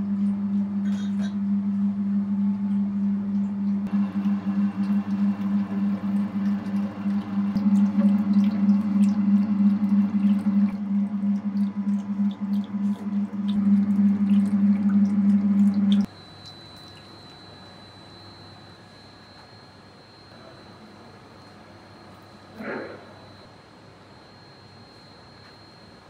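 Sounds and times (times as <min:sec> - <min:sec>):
electric dough mixer humming: 0:01.5 - 0:16.1
dough splashing and dripping: 0:03.9 - 0:16.1.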